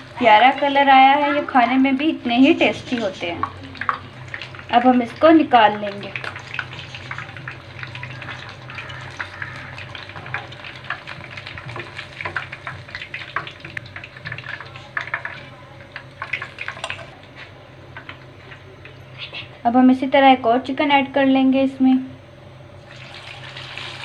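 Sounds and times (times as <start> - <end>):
hot oil sizzling and popping: 0.0 - 17.2, 22.8 - 24.0.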